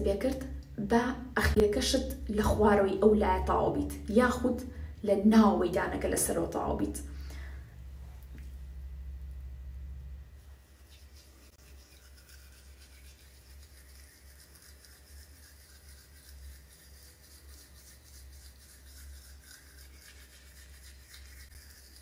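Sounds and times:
toothbrush scrubbing teeth: 10.4 - 22.0.

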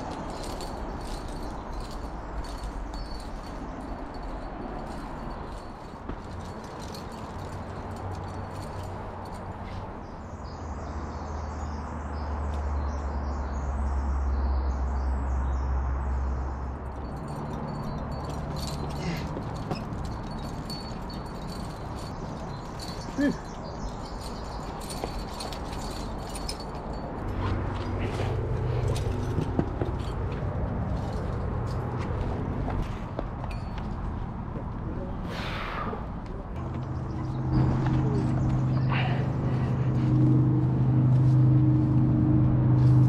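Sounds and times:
faint metallic clinking: 0.0 - 10.6, 16.8 - 34.3.

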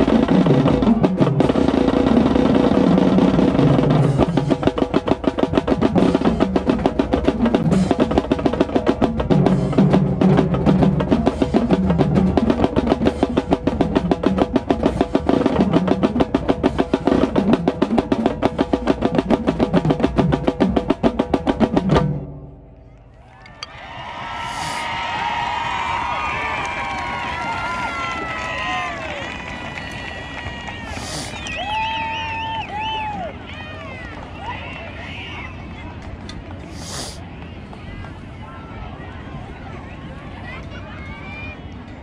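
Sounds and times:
rapid snare drum strokes: 0.0 - 22.4, 36.7 - 37.2
bass drums: 0.0 - 22.8
marching band playing: 0.0 - 22.8.

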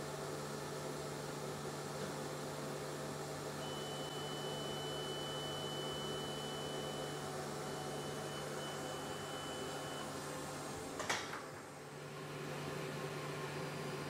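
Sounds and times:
machine low hum: 0.0 - 14.0
high-pitched motor whine: 3.6 - 10.2.

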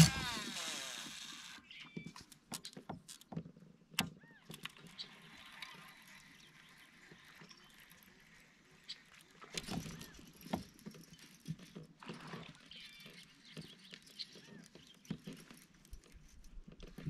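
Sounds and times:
fishing reel whirring: 0.0 - 1.7, 4.5 - 10.4.

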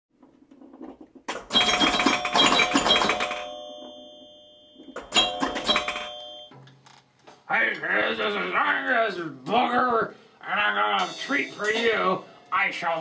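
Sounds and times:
cymbals ringing: 10.8 - 12.9
drum kit hits: 11.0 - 12.3.

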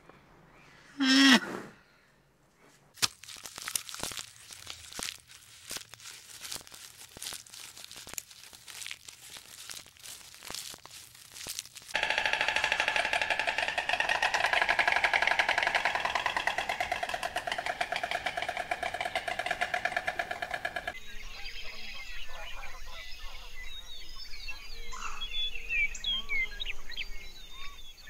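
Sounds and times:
giraffes chewing leaves: 3.0 - 12.0
leaves crackling and snapping: 3.0 - 12.0
loud rapid buzzing pulse: 12.0 - 21.0.

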